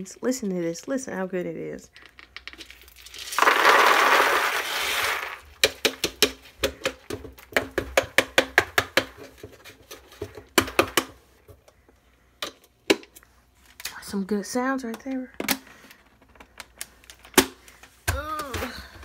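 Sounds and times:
beans clattering through hose: 2.0s - 6.0s.

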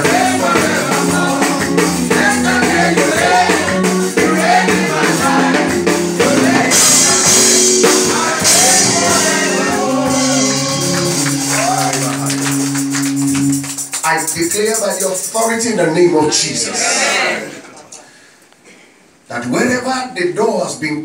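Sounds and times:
congregation singing: 0.0s - 13.7s, 15.4s - 18.0s
tambourine shaking: 7.0s - 15.7s.

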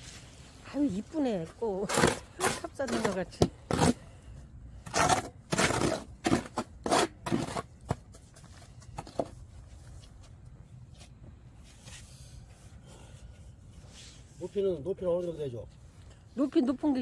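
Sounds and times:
trowel scraping mortar: 1.7s - 4.0s, 4.8s - 8.0s.

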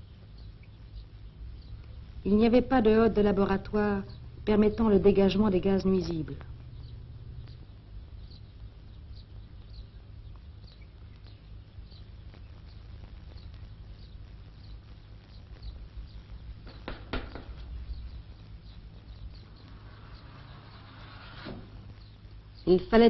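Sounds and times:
steady low hum: 0.0s - 23.0s
faint high chirps: 6.1s - 21.1s.

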